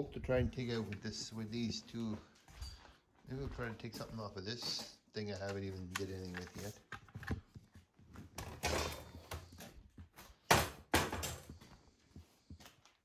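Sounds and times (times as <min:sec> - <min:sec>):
rustling of things handled: 0:00.0 - 0:13.0.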